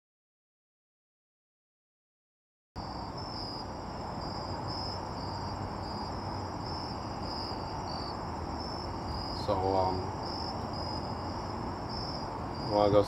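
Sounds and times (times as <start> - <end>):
crickets chirping: 2.8 - 13.0.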